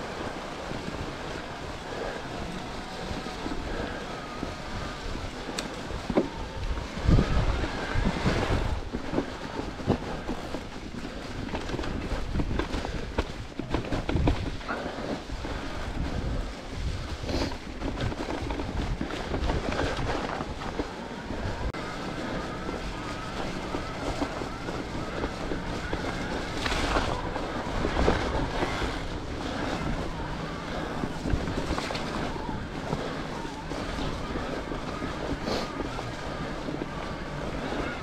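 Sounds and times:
tyres rumbling over ground: 0:00.0 - 0:38.0
wind buffeting microphone: 0:00.0 - 0:38.0
bike knocks and rattles: 0:02.4 - 0:37.1.

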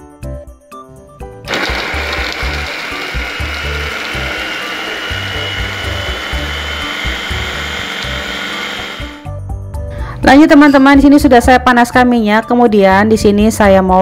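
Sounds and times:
electric food chopper whining: 0:01.5 - 0:09.2.

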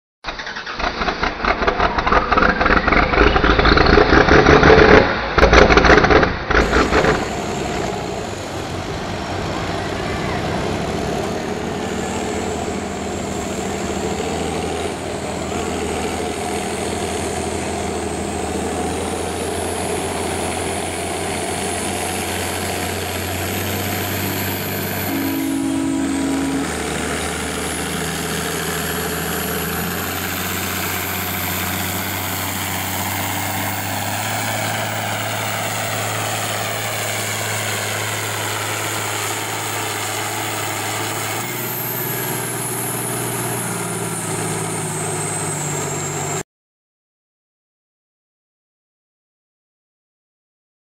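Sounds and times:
tractor diesel engine under load: 0:00.2 - 0:46.4
thin high whistle: 0:24.2 - 0:28.4
short two-tone sound: 0:24.2 - 0:29.1.

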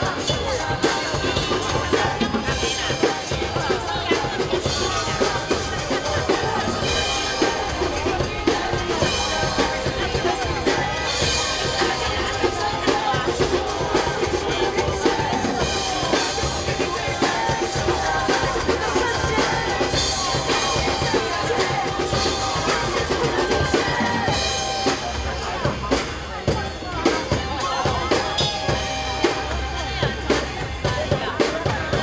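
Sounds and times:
drum kit rock beat: 0:00.0 - 0:32.0
pop backing track: 0:00.0 - 0:32.0.

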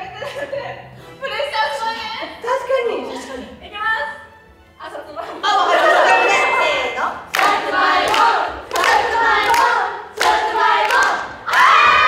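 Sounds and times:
hand clapping: 0:07.3 - 0:11.7.

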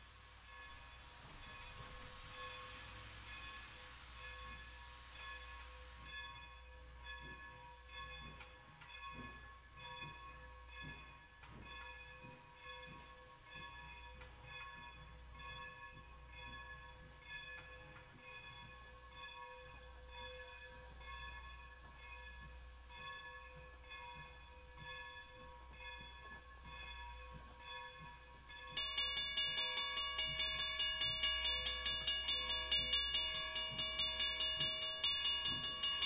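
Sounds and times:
crossing bell ringing: 0:28.8 - 0:36.0
steam locomotive chuffing: 0:28.8 - 0:36.0.

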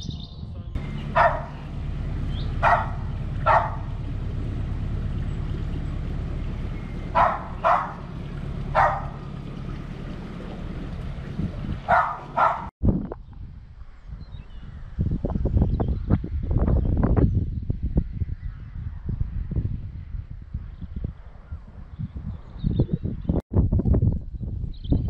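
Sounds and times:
diesel engine humming: 0:00.8 - 0:12.7
dog barking: 0:01.0 - 0:01.7, 0:02.6 - 0:04.0, 0:07.1 - 0:08.1, 0:08.7 - 0:09.2, 0:11.9 - 0:12.7.

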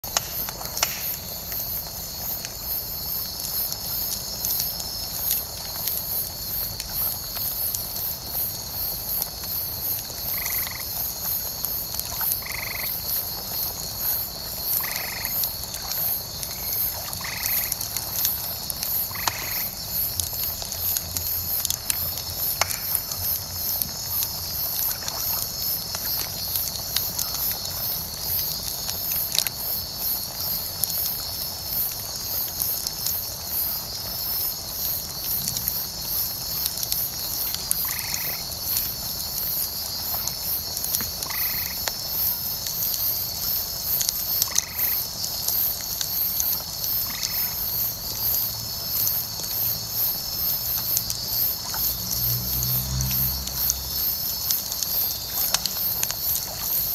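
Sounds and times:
bonfire crackling and popping: 0:00.0 - 0:56.9
night insects chorus: 0:00.0 - 0:56.9
frog croaking: 0:10.3 - 0:10.9, 0:12.1 - 0:13.0, 0:14.8 - 0:15.4, 0:16.6 - 0:17.8, 0:37.8 - 0:38.4, 0:41.2 - 0:41.8, 0:47.0 - 0:47.6.

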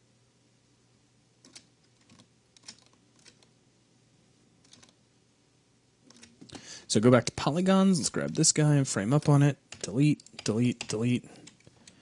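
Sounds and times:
computer keyboard and mouse clicks: 0:01.4 - 0:03.5, 0:04.6 - 0:05.0, 0:06.0 - 0:06.6, 0:08.2 - 0:08.5, 0:09.7 - 0:12.0.

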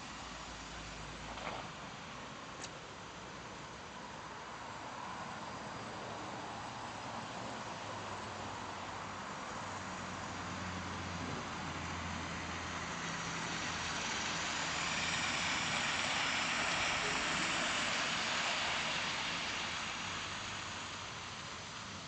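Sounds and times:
model train whirring on track: 0:11.7 - 0:22.0.

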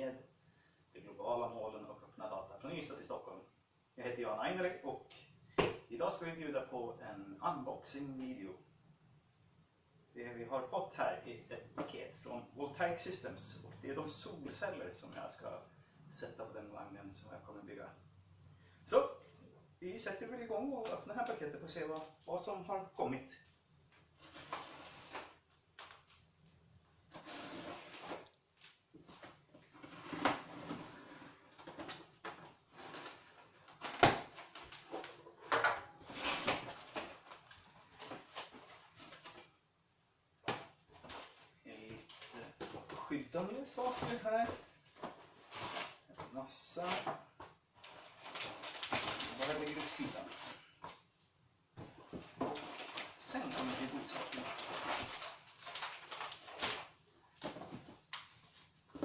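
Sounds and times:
cardboard flaps scraping and rustling: 0:29.1 - 0:35.2, 0:43.8 - 0:46.1, 0:47.8 - 0:50.7, 0:51.8 - 0:58.7.

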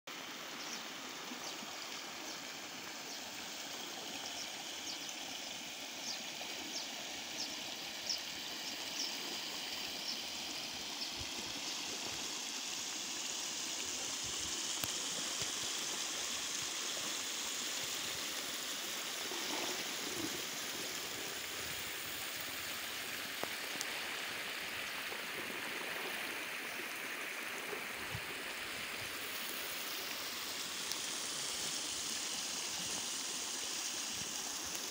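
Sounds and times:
water rushing along a channel: 0:00.1 - 0:34.9.

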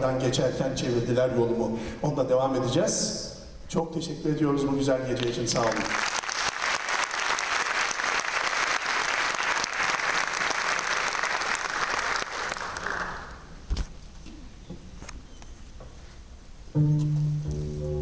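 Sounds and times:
audience applauding: 0:05.6 - 0:13.5.

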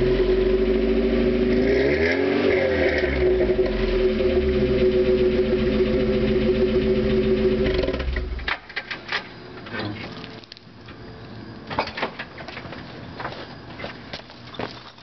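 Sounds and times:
car engine idling: 0:00.0 - 0:01.6, 0:03.1 - 0:08.6.

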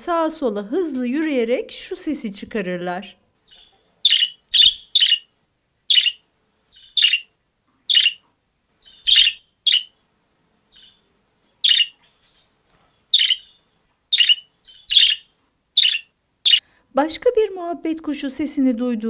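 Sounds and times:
budgerigar shrill calls: 0:03.5 - 0:05.3, 0:05.9 - 0:07.3, 0:07.9 - 0:08.2, 0:08.8 - 0:10.0, 0:10.7 - 0:12.0, 0:13.1 - 0:16.6.

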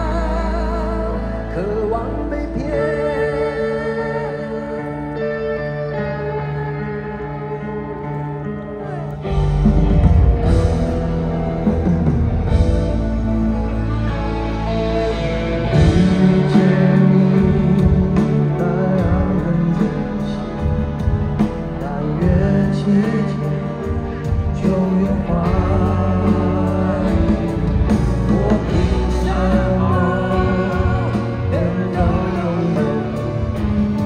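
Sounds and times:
live pop-rock band: 0:00.0 - 0:34.0
men singing: 0:15.7 - 0:20.8, 0:21.7 - 0:34.0.

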